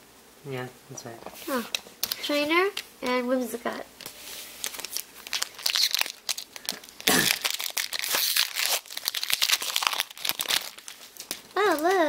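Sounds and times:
foil wrapper crinkling and tearing: 4.6 - 12.0.

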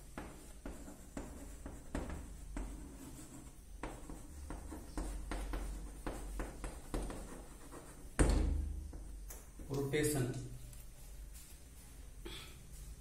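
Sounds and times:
chalk scratching on blackboard: 0.0 - 8.2.

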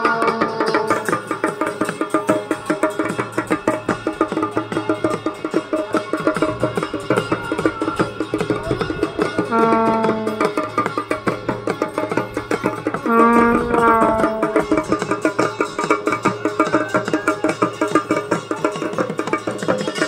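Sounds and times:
fast drumming: 0.0 - 20.0
long held notes: 7.8 - 10.7, 13.0 - 15.2.

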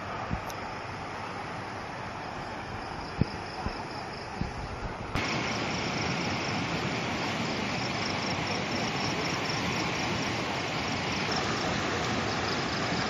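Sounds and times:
floodwater rushing: 5.0 - 13.0.

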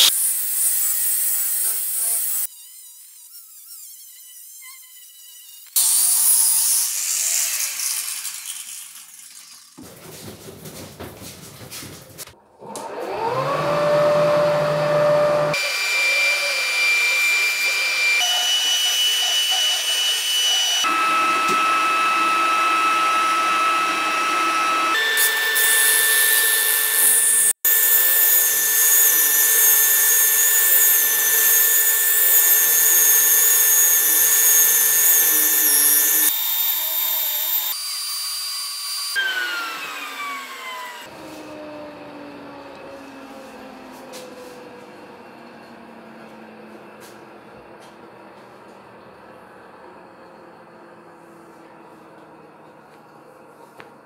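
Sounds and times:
shop vacuum motor whine: 12.6 - 37.8, 39.1 - 53.6
disc power sander sanding: 12.9 - 37.8.

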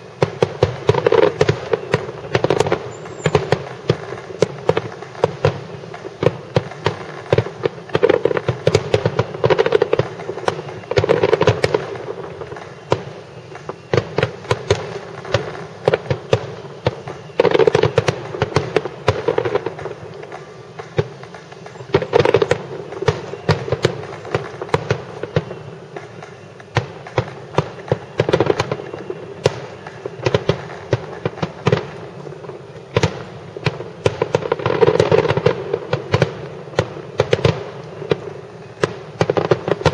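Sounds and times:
fireworks bursting: 0.0 - 39.9.

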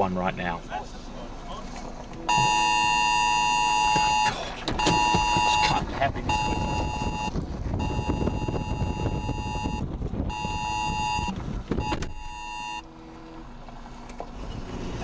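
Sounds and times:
vehicle road rumble: 0.0 - 15.0
electronic alert tone beeping: 2.3 - 12.8.

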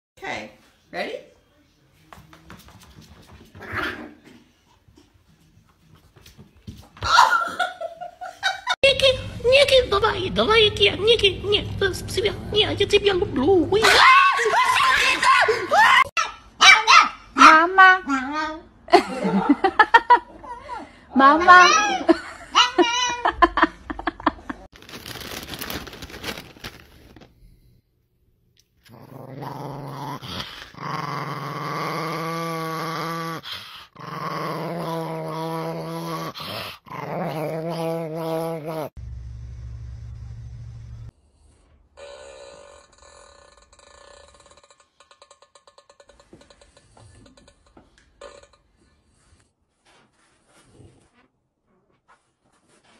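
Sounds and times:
small dog growling: 28.8 - 38.9, 42.0 - 45.9.

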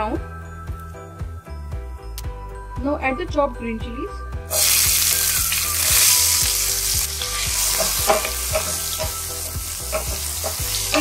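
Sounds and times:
chilies sizzling in hot oil: 4.5 - 11.0.

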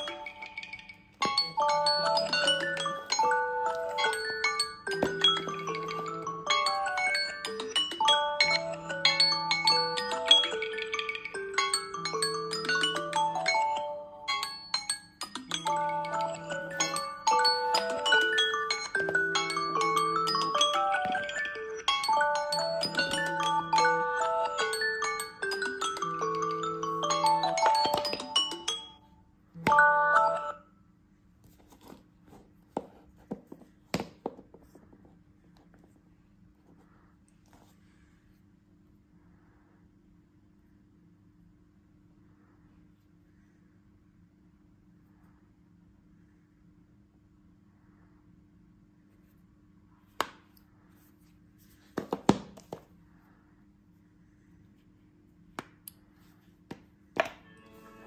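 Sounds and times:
phone alarm chime melody: 0.0 - 14.8, 15.4 - 29.0, 29.6 - 30.6
fingers tapping on phones: 27.5 - 28.7.

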